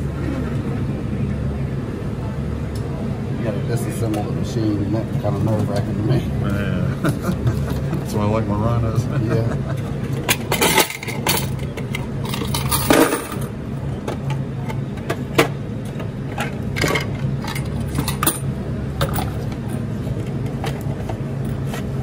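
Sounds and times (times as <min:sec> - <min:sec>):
steady low hum: 0:00.0 - 0:22.0
coins clinking: 0:10.4 - 0:13.5, 0:16.8 - 0:18.5.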